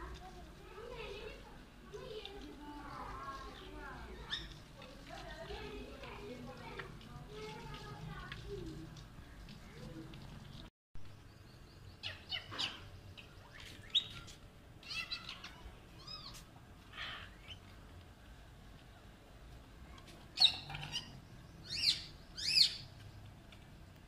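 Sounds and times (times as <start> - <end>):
parakeets calling: 16.9 - 17.6, 20.4 - 22.9.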